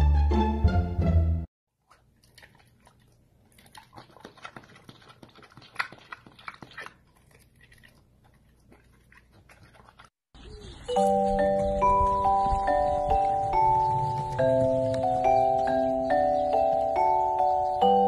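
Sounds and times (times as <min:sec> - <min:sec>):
pig chewing and smacking lips: 0:01.8 - 0:10.2.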